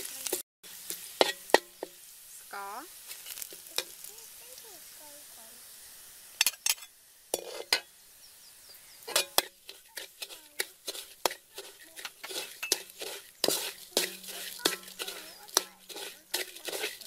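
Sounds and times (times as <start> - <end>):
metal spatula scraping a wok: 0.0 - 2.1, 3.0 - 4.1, 6.4 - 7.9, 9.0 - 17.0.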